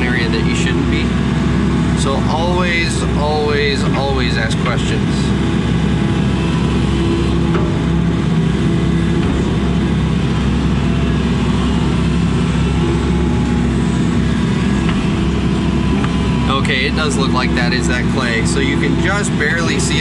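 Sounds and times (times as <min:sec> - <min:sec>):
excavator diesel engine running: 0:00.0 - 0:20.0.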